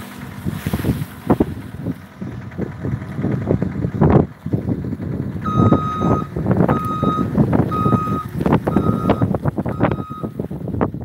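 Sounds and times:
wind gusting on microphone: 0.0s - 11.0s
reversing alarm beeping: 5.4s - 10.4s.

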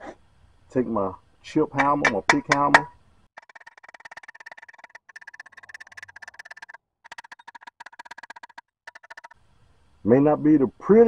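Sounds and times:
chipping hammer tapping metal: 1.8s - 9.4s.

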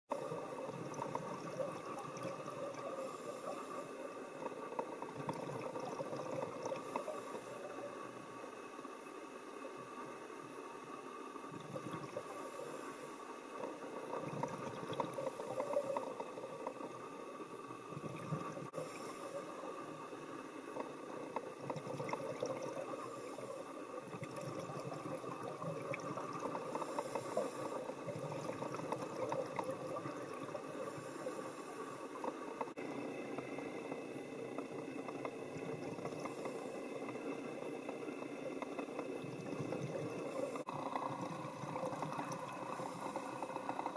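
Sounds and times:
underwater bubbling and crackling: 0.1s - 43.9s
diver regulator breathing hiss: 2.8s - 4.4s, 6.8s - 8.3s, 12.1s - 14.1s, 18.6s - 21.2s, 22.8s - 24.0s, 26.6s - 28.1s, 30.6s - 32.5s, 42.5s - 43.9s.

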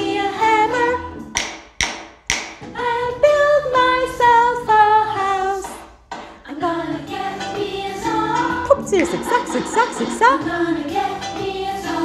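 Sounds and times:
woman singing: 0.0s - 1.0s, 2.8s - 5.8s, 6.5s - 12.0s
wooden rhythm sticks tapping: 1.3s - 2.8s, 5.6s - 6.6s, 7.4s - 11.6s.

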